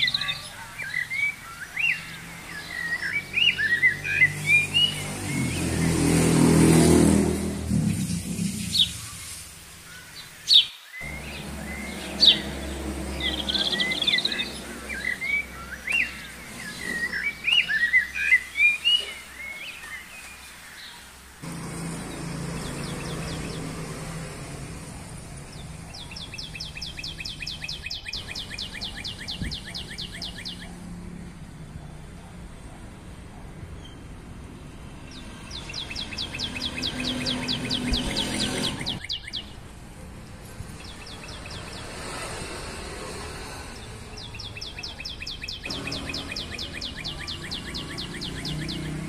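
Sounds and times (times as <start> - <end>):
bird trill: 0.0 - 6.0, 8.0 - 20.5, 25.5 - 30.8, 35.2 - 39.6, 44.2 - 49.0
small birds chirping: 0.0 - 49.0.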